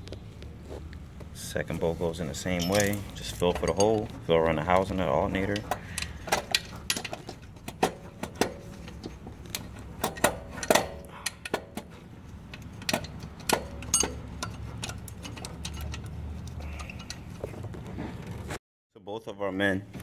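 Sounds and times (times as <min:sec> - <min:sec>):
metallic clicks and clinks: 0:02.4 - 0:04.1.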